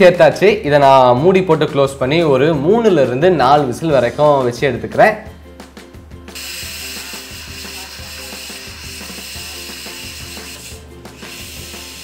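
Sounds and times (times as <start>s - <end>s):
pressure cooker steam hissing: 6.3s - 12.0s.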